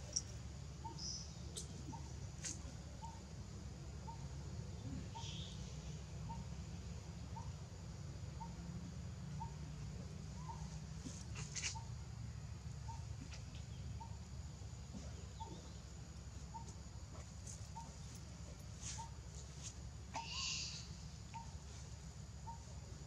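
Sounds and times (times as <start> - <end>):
low background hum: 0.0 - 23.0
bird calling: 10.3 - 11.9, 17.5 - 18.2, 20.1 - 21.7, 22.4 - 22.8.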